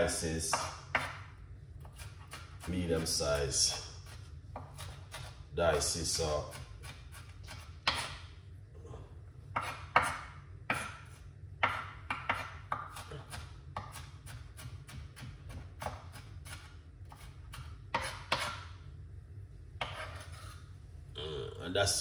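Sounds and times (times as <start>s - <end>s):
steady low hum: 0.0s - 22.0s
knife chopping on cutting board: 0.5s - 1.2s, 4.1s - 5.8s, 6.5s - 8.2s, 9.5s - 18.7s, 19.8s - 20.5s.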